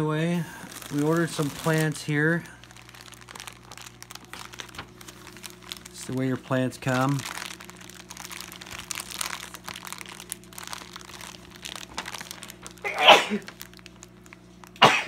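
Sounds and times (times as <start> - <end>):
plastic bag crinkling: 0.3 - 14.8
person sneezing: 12.8 - 13.5, 14.8 - 15.0.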